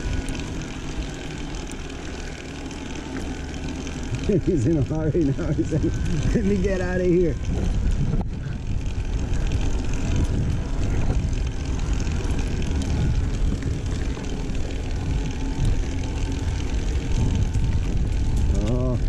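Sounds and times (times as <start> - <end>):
bike rattles: 0.0 - 19.0
wind rumble on microphone: 4.0 - 19.0.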